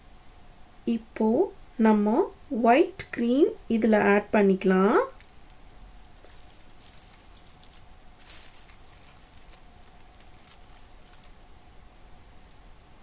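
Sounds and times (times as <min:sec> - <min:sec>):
plastic piping bag crinkling: 0:03.0 - 0:11.4, 0:12.3 - 0:12.6.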